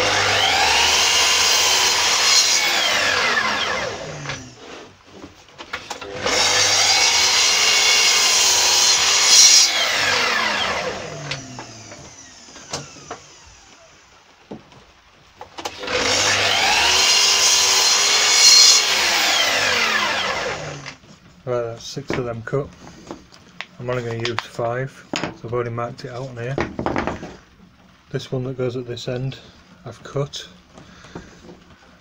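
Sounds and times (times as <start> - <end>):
mitre saw motor spinning: 0.0 - 4.6, 15.7 - 21.0
saw blade cutting wood: 0.0 - 4.9, 6.0 - 13.8, 15.7 - 21.0.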